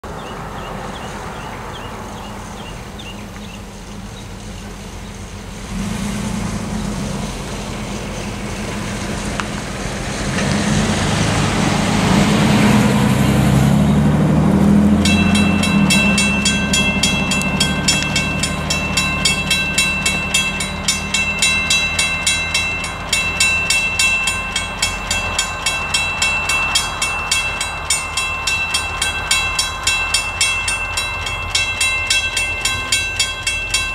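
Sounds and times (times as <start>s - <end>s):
crossing bell ringing rapidly: 14.8s - 33.9s.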